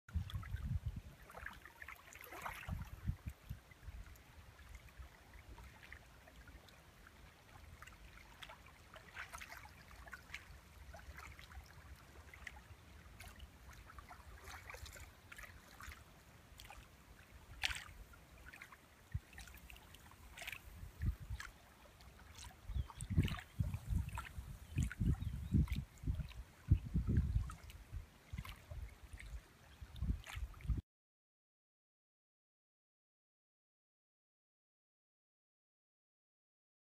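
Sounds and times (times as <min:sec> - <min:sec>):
wind rumbling on microphone: 0:00.1 - 0:01.5, 0:02.4 - 0:04.2, 0:20.5 - 0:21.5, 0:22.5 - 0:30.8
wavelets lapping at lake edge: 0:00.1 - 0:30.8.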